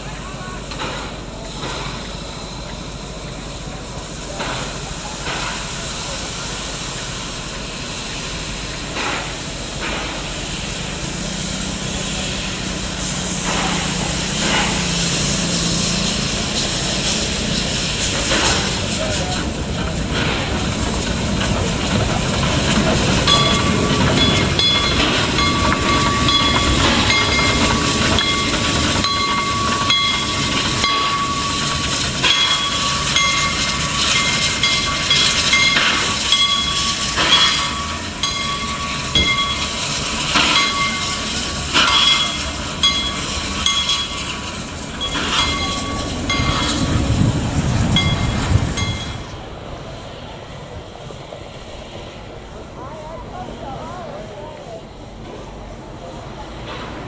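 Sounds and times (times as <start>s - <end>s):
steam hissing: 0.0s - 57.0s
steam locomotive moving slowly: 0.0s - 57.0s
high steady tone: 23.2s - 39.8s
sharp metallic knocks: 40.3s - 44.4s.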